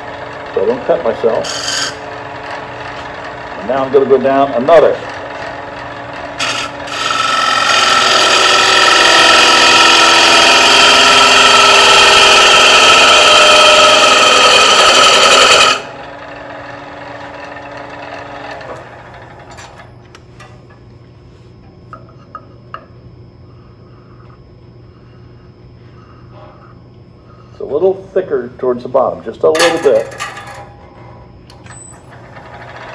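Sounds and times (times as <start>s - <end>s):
gouge cutting wood on lathe: 0.0s - 19.5s, 32.2s - 32.9s
lathe running: 0.0s - 20.0s, 31.8s - 32.9s.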